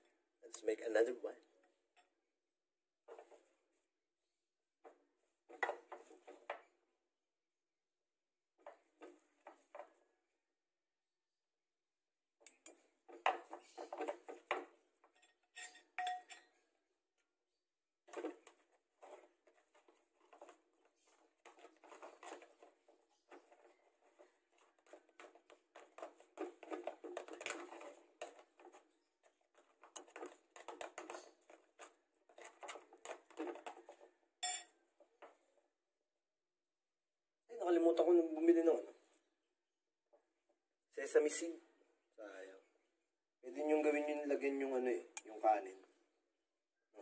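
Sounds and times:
dishes and utensils clinking: 0:15.1 - 0:16.6, 0:34.4 - 0:34.7.

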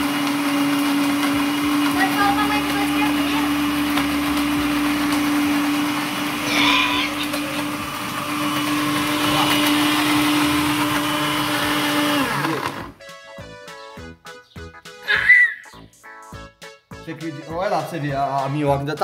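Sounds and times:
blender running: 0:00.0 - 0:13.0
background music with a beat: 0:13.0 - 0:19.0.

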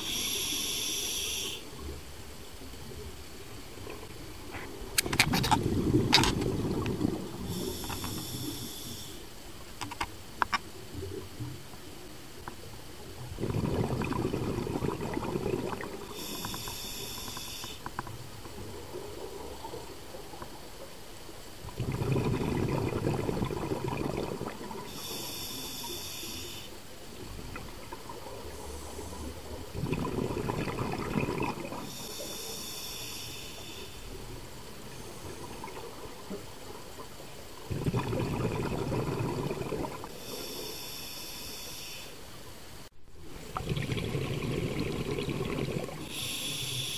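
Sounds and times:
regulator inhalation hiss: 0:00.0 - 0:01.8, 0:07.4 - 0:09.4, 0:16.0 - 0:17.9, 0:24.8 - 0:26.8, 0:31.8 - 0:34.2, 0:40.1 - 0:42.3, 0:46.0 - 0:46.9
exhaled bubbles rushing: 0:04.8 - 0:07.7, 0:13.2 - 0:16.2, 0:21.6 - 0:25.0, 0:27.1 - 0:32.0, 0:34.8 - 0:40.2, 0:43.2 - 0:46.2.

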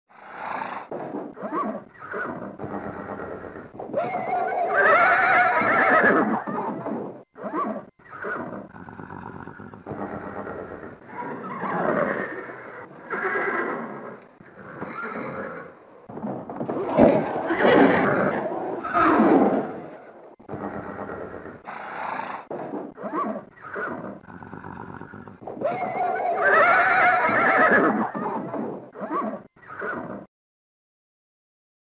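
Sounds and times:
horse whinnying: 0:00.3 - 0:30.3
horse breathing: 0:08.2 - 0:25.7.

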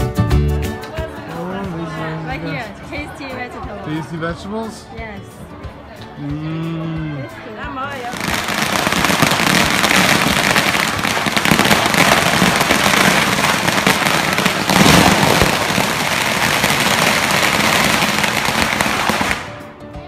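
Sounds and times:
firecrackers crackling: 0:08.0 - 0:19.8.

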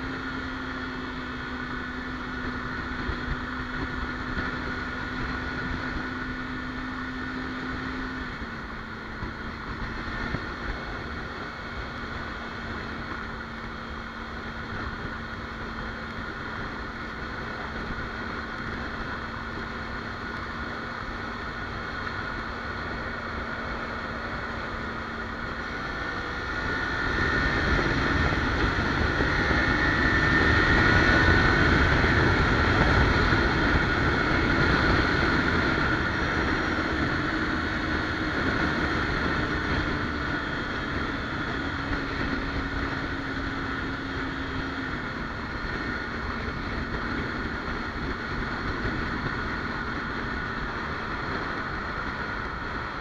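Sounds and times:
motorcycle engine: 0:00.0 - 0:53.0
wind rushing over microphone: 0:00.0 - 0:53.0.

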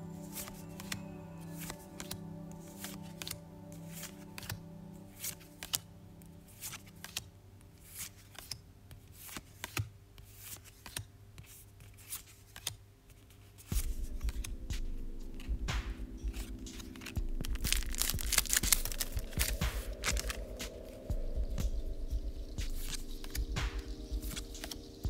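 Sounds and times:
soft background music: 0:00.0 - 0:25.0
trading cards flicking and sliding: 0:00.2 - 0:04.6, 0:05.2 - 0:05.8, 0:06.5 - 0:21.1, 0:22.6 - 0:25.0
low rumble: 0:13.8 - 0:24.5.

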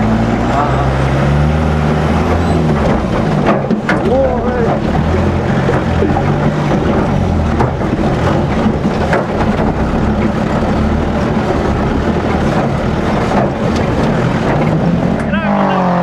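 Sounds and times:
jeep engine running under load: 0:00.0 - 0:16.0
car body knocks and rattles: 0:02.6 - 0:15.3.

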